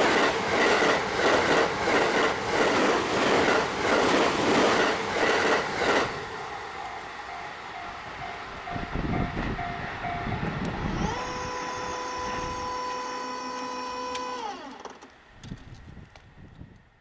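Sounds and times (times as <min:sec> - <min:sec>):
train rumble: 0:00.0 - 0:13.1
level crossing warning bell: 0:06.8 - 0:10.4
crossing gate motor whining: 0:10.6 - 0:15.2.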